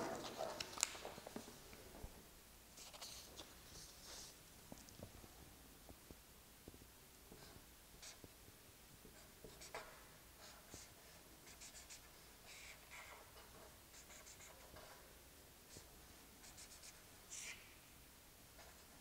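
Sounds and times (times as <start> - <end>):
felt-tip marker scratching on paper: 9.2 - 13.3, 13.9 - 15.0, 15.7 - 17.6.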